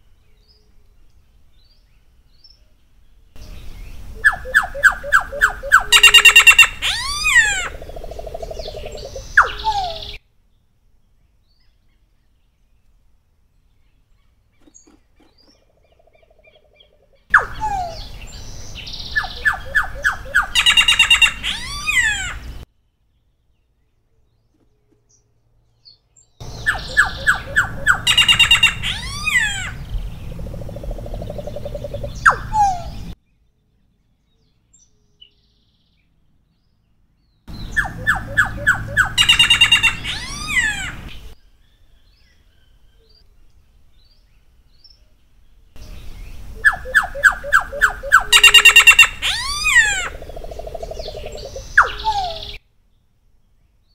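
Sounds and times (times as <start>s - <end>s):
bird singing whistled phrases: 4.2s - 7.7s, 8.6s - 10.2s, 17.3s - 22.2s, 26.4s - 29.7s, 32.1s - 33.0s, 46.6s - 50.1s, 51.0s - 52.6s.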